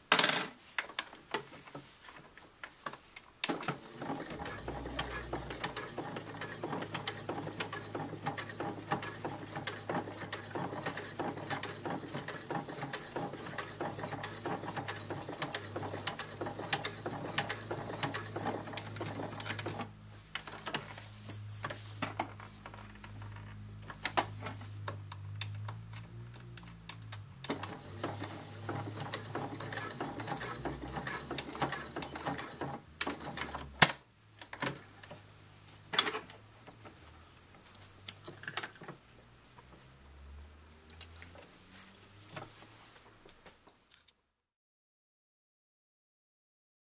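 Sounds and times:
sewing machine needle clatter: 0:03.4 - 0:19.9, 0:27.0 - 0:33.7
sewing machine motor hum: 0:03.5 - 0:19.9, 0:27.4 - 0:33.7.

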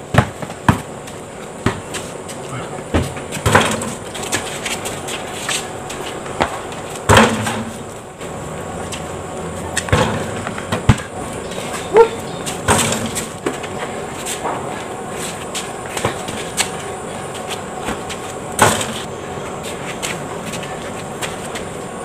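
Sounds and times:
basketball bouncing on concrete: 0:00.0 - 0:02.1, 0:02.8 - 0:05.0, 0:05.9 - 0:07.8, 0:08.9 - 0:13.8, 0:15.5 - 0:19.1
ball hitting backboard and rim: 0:00.1 - 0:00.9, 0:01.6 - 0:02.1, 0:02.9 - 0:04.5, 0:06.3 - 0:07.8, 0:09.7 - 0:11.2, 0:12.5 - 0:13.7, 0:15.8 - 0:16.8, 0:17.8 - 0:19.0
shoe squeak: 0:11.4 - 0:12.6.

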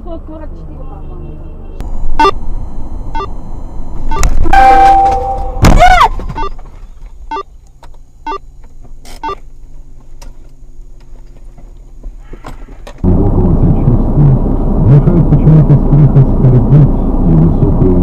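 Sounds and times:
engine and road noise rumble: 0:00.0 - 0:18.0
low engine hum: 0:00.0 - 0:18.0
vehicle horn blaring: 0:04.4 - 0:05.7.

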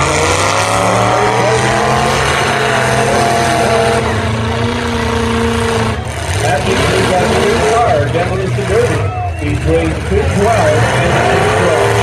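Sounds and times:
car engines running loudly: 0:00.0 - 0:12.0.

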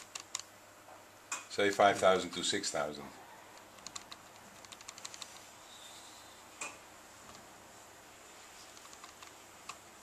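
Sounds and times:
low room hiss: 0:00.0 - 0:10.0
laptop key clicks: 0:03.7 - 0:05.3.

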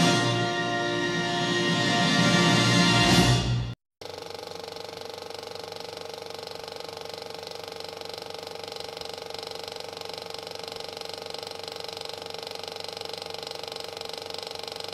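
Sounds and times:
film projector clatter: 0:04.0 - 0:14.9.

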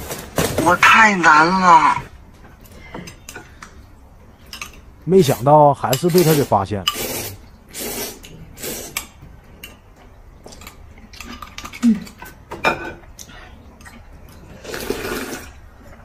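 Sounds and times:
cutlery clinking against bowls: 0:04.5 - 0:04.9, 0:05.8 - 0:07.1, 0:10.5 - 0:13.1
noodles slurping: 0:06.2 - 0:09.1, 0:13.8 - 0:16.0.

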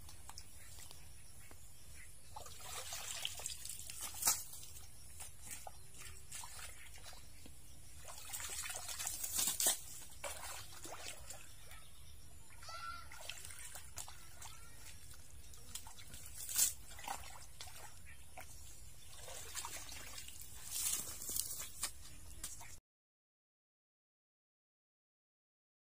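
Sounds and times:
muddy water sloshing: 0:00.0 - 0:22.8
sharp splashes: 0:02.3 - 0:04.8, 0:05.4 - 0:07.3, 0:08.0 - 0:11.7, 0:12.5 - 0:21.0
shovel digging: 0:09.1 - 0:10.1.

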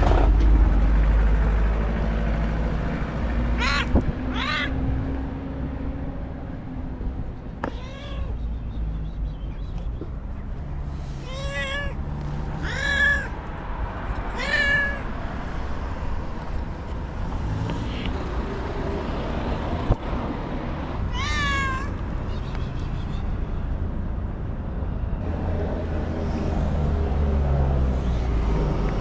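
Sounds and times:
low street rumble: 0:00.0 - 0:29.0
cat meowing: 0:03.6 - 0:04.8, 0:07.6 - 0:08.4, 0:11.2 - 0:12.0, 0:12.6 - 0:13.4, 0:14.3 - 0:15.1, 0:21.1 - 0:22.0.

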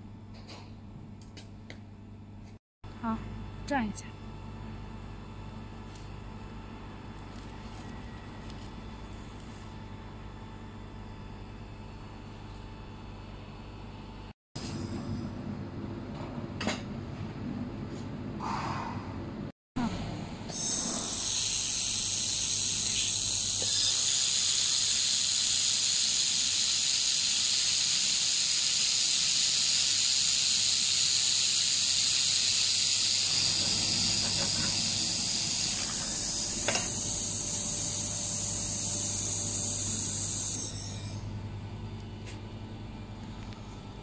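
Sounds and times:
shielding gas hissing: 0:20.5 - 0:40.6.

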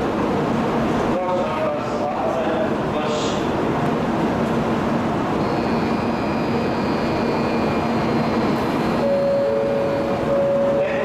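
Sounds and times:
train running noise: 0:00.0 - 0:11.0
faint high whine: 0:05.4 - 0:11.0.

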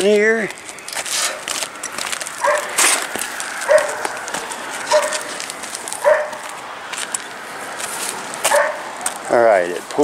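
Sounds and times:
dog barking: 0:02.4 - 0:02.8, 0:03.7 - 0:04.1, 0:04.9 - 0:05.3, 0:06.0 - 0:06.4, 0:08.5 - 0:08.9.

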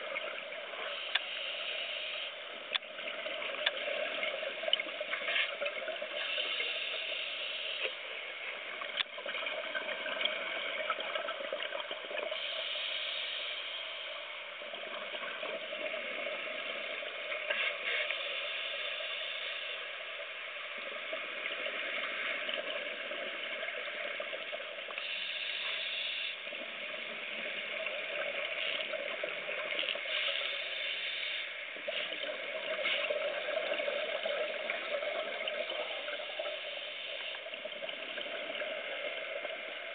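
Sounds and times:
steady underwater hiss: 0:00.0 - 0:39.9
underwater exhaled bubbles: 0:08.2 - 0:12.9, 0:31.6 - 0:39.9.

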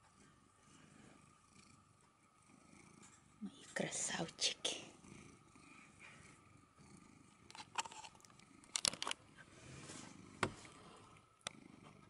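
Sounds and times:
cat purring: 0:00.0 - 0:12.0
sharp clicks and scrapes: 0:07.5 - 0:09.2.

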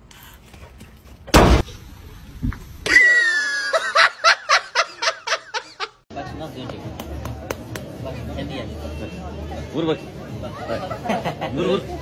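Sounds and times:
loud thump: 0:01.3 - 0:01.8.

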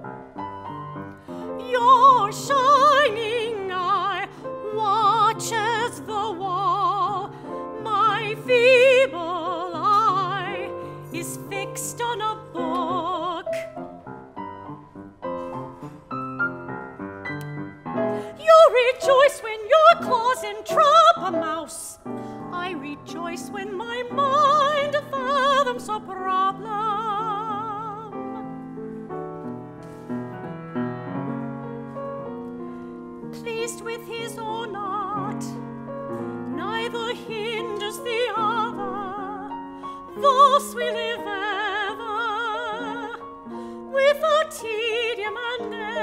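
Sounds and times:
piano accompaniment: 0:00.0 - 0:46.0
soprano operatic singing: 0:01.4 - 0:13.8, 0:18.3 - 0:28.6, 0:33.3 - 0:35.7, 0:36.5 - 0:46.0.

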